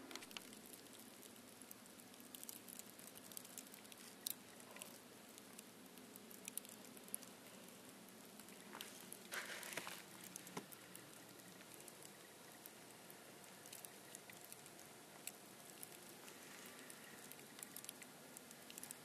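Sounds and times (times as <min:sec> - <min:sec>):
faint outdoor hiss: 0:00.0 - 0:19.0
soft ticks: 0:00.1 - 0:07.8, 0:13.4 - 0:19.0.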